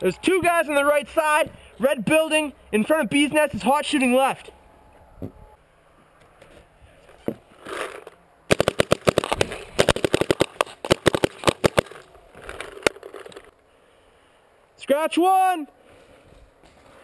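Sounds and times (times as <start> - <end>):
paintball markers firing: 7.8 - 13.5.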